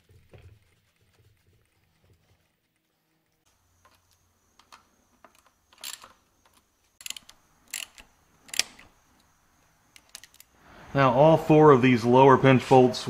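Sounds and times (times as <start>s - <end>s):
socket ratchet clicking: 4.6s - 9.3s.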